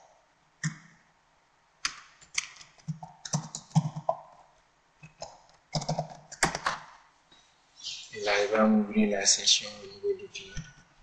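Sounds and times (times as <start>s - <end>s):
computer keyboard typing: 1.8s - 4.3s, 5.0s - 6.9s.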